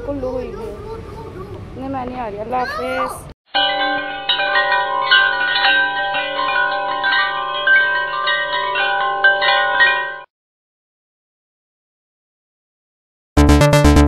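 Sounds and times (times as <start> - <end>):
chime-like bell music: 3.5 - 10.3.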